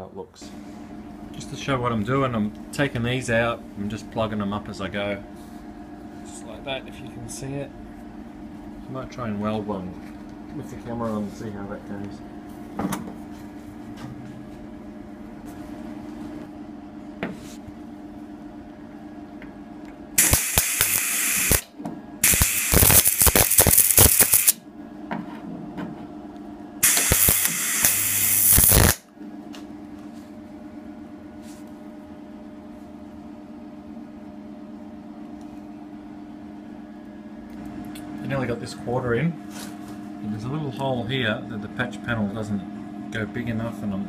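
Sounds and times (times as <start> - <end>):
steady low hum: 0.0 - 44.0
welder arc crackling and sizzling: 20.2 - 24.6, 26.8 - 29.0.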